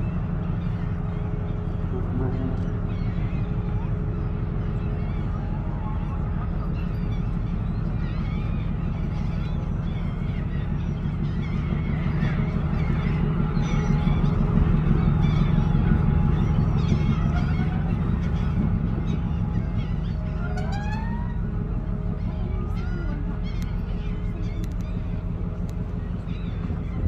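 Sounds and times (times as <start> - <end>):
birds calling: 0.0 - 27.0
ship engine rumble: 0.0 - 27.0.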